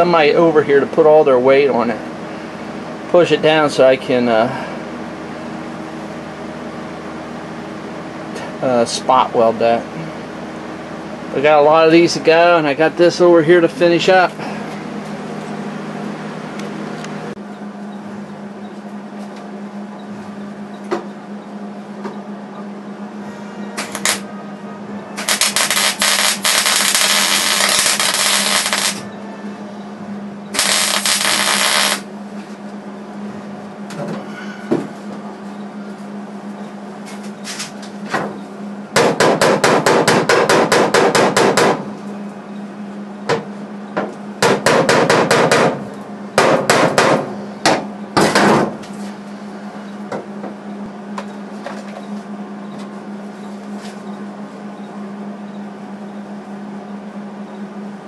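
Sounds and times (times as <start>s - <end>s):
steady hum: 0.0s - 58.0s
arc welding crackling hiss: 23.9s - 24.2s, 25.2s - 29.0s, 30.5s - 32.1s
hammer tapping on sheet metal: 39.0s - 41.8s, 44.4s - 45.8s, 46.4s - 48.6s.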